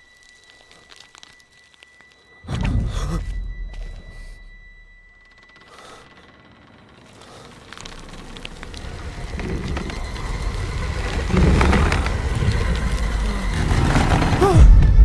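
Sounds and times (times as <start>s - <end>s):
crackles: 0.0s - 14.6s
deep rumble: 2.4s - 5.2s, 7.7s - 15.0s.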